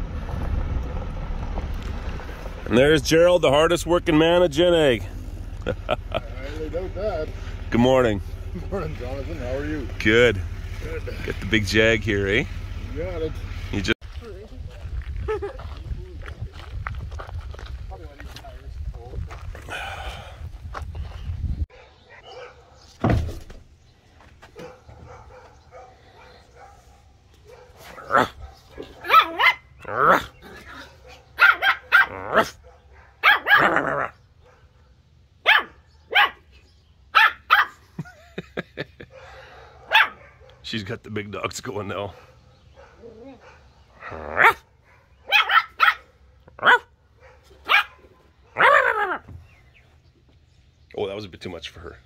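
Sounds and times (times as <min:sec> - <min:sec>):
dog barking: 0:21.7 - 0:22.8, 0:24.6 - 0:36.5, 0:37.1 - 0:37.8, 0:39.1 - 0:40.7, 0:42.1 - 0:49.2.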